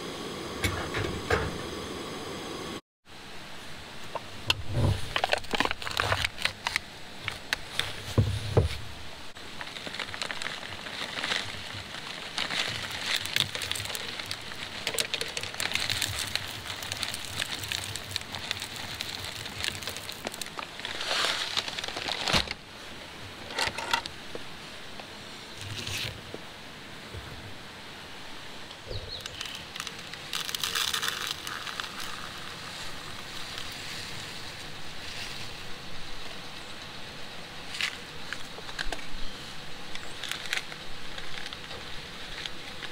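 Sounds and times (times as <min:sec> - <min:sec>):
foil lid crinkling and tearing: 0:05.0 - 0:08.0, 0:09.5 - 0:22.6, 0:29.2 - 0:33.8, 0:40.0 - 0:42.9
granola pouring into cup: 0:12.8 - 0:21.4, 0:29.4 - 0:32.4.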